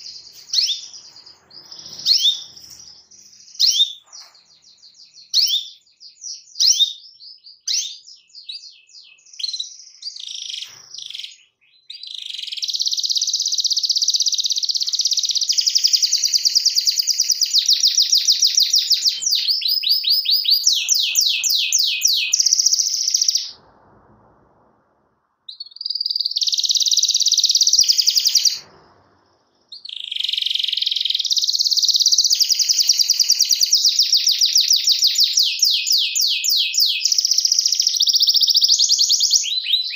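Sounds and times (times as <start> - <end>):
canary singing trills: 0.0 - 23.6, 25.5 - 28.6, 29.6 - 39.9.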